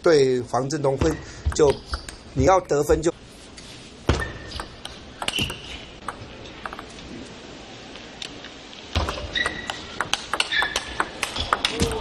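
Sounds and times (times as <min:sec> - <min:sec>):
shoes squeaking on floor: 0:04.1 - 0:06.0, 0:09.1 - 0:11.5
ping pong ball clicks: 0:09.5 - 0:11.9.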